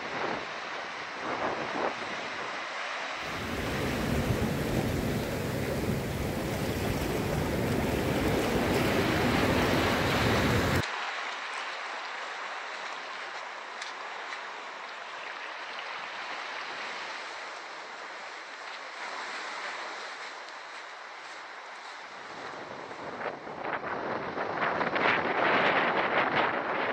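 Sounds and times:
sea surf rushing: 0.0 - 11.9
wind buffeting microphone: 3.2 - 10.8, 22.7 - 26.9.

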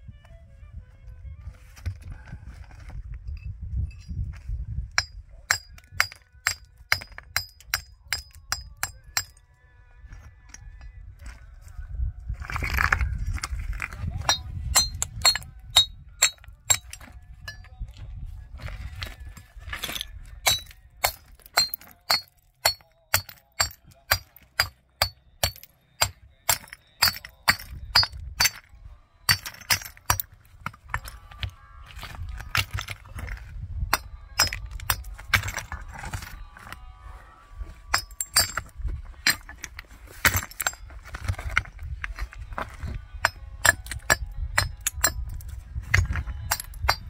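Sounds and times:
hard objects clinking and knocking: 12.5 - 17.7, 19.7 - 28.7, 29.3 - 36.7, 37.9 - 47.0.

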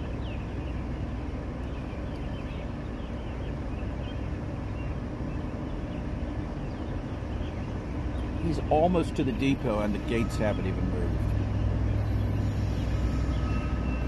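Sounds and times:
diesel locomotive rumble: 0.0 - 14.0.

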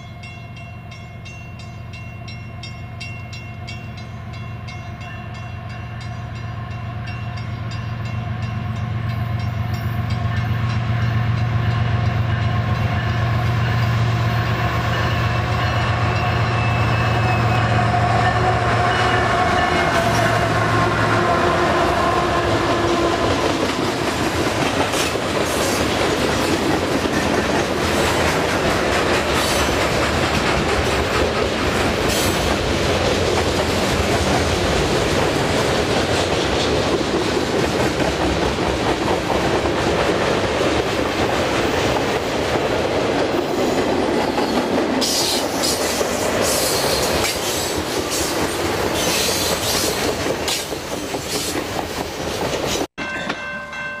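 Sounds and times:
diesel locomotive engine drone: 0.0 - 51.9
train wheels clattering over rail joints: 22.7 - 53.4.

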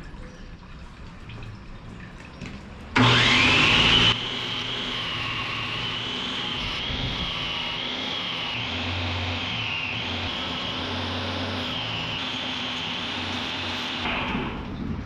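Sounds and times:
low motor hum: 1.5 - 15.0
belt grinder grinding steel: 3.0 - 14.1.

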